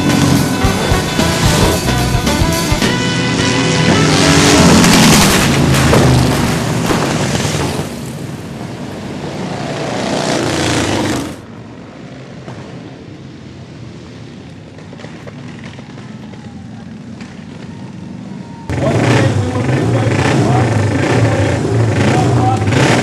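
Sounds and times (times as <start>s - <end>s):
motorcycles passing at speed: 0.0s - 23.0s.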